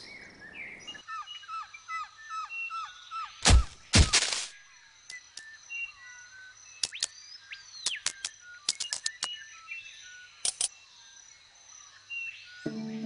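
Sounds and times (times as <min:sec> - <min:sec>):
small bird chirping: 0:05.1 - 0:10.8.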